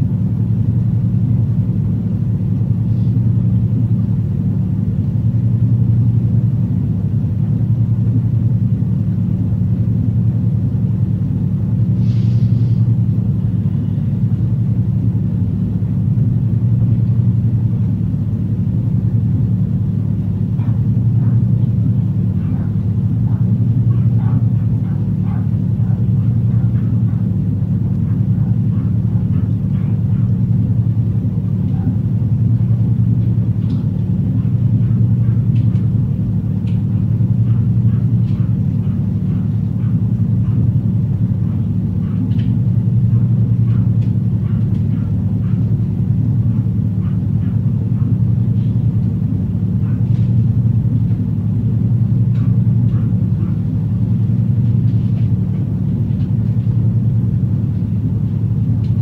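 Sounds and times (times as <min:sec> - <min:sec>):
electrical appliance hum: 0:00.0 - 0:59.0.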